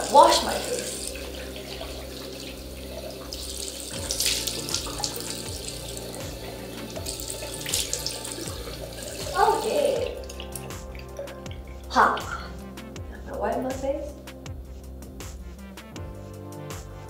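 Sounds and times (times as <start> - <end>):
hands splashing water on face: 0.0 - 12.6
tap running into sink: 3.1 - 12.5.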